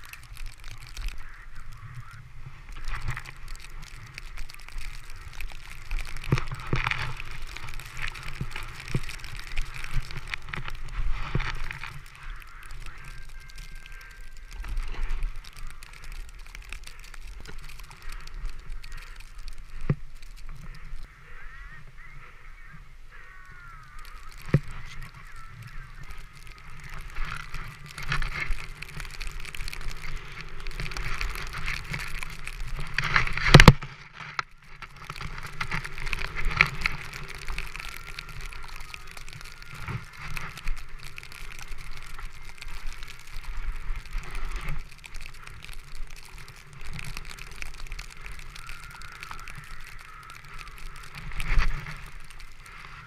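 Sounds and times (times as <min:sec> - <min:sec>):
board sliding through snow: 0:00.0 - 0:21.0, 0:23.5 - 0:53.0.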